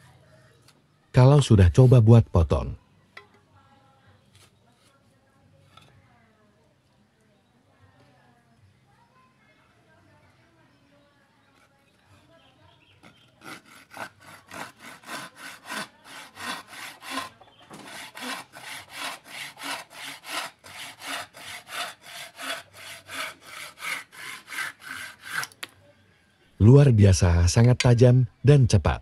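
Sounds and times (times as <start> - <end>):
hand saw cutting wood: 13.0 - 25.7.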